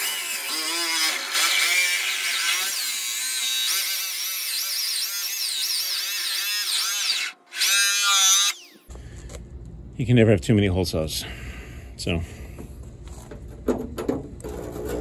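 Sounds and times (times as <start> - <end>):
hole saw screeching through sheet metal: 0.0 - 8.8.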